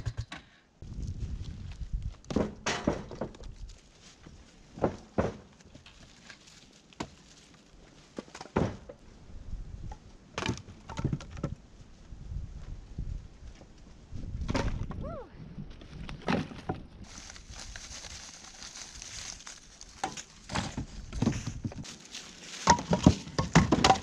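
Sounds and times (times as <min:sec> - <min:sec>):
firewood logs clunking onto wood: 0:02.2 - 0:03.7, 0:04.7 - 0:07.5, 0:08.1 - 0:09.0, 0:10.3 - 0:11.6, 0:14.4 - 0:15.0, 0:16.1 - 0:16.9, 0:19.6 - 0:24.0.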